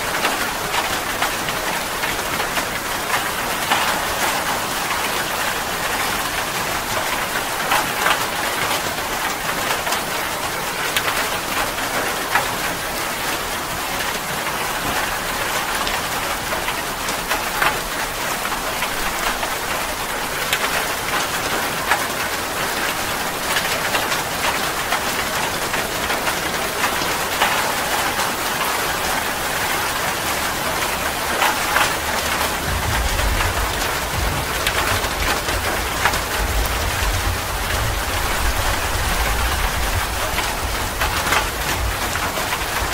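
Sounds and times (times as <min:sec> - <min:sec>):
heavy rain on leaves: 0:00.0 - 0:42.9
rain drop hits: 0:14.9 - 0:42.9
thunder rumble: 0:32.2 - 0:42.9.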